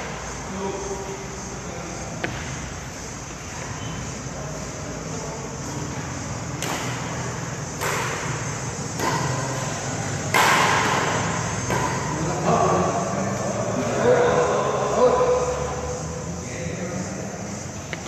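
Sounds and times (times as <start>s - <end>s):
racket hitting shuttlecock: 2.2s - 2.6s, 6.6s - 12.3s.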